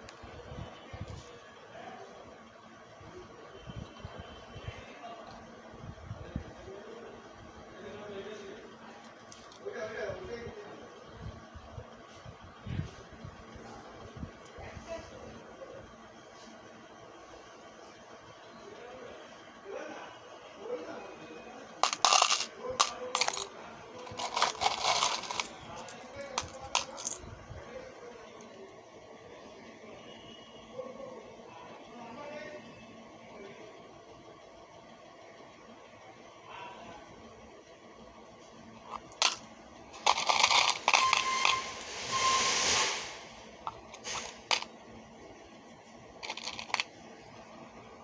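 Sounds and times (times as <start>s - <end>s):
small metal pieces clinking: 21.8s - 27.2s, 40.0s - 42.0s, 44.0s - 44.7s, 46.2s - 46.9s
soft sliding hiss: 41.6s - 44.6s.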